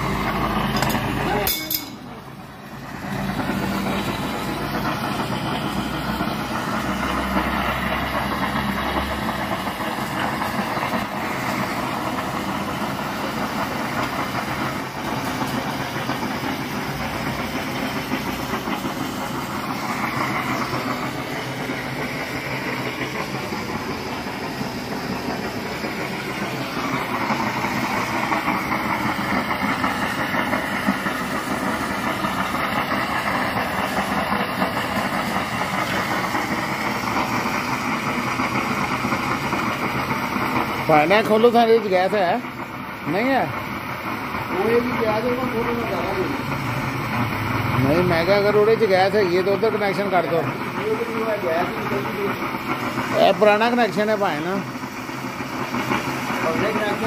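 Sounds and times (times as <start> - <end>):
gas hissing from pipe: 0.0 - 57.0
water spraying: 0.0 - 57.0.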